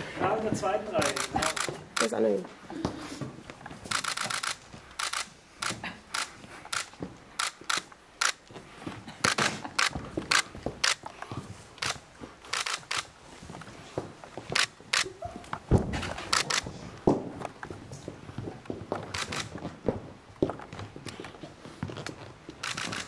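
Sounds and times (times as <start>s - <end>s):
camera shutter clicks: 1.0s - 2.2s, 3.9s - 8.4s, 9.2s - 11.0s, 11.8s - 13.1s, 16.3s - 16.6s, 19.2s - 19.5s, 22.6s - 23.0s.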